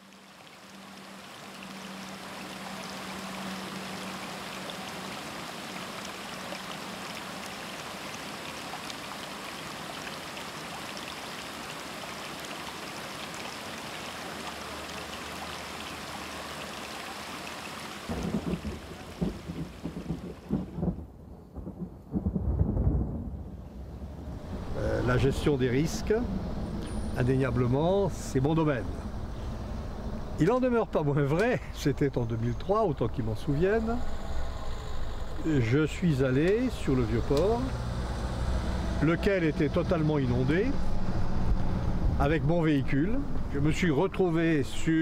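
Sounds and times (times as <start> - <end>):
stream running over rocks: 0.0 - 20.5, 30.3 - 45.0
rolling thunder: 18.1 - 24.6.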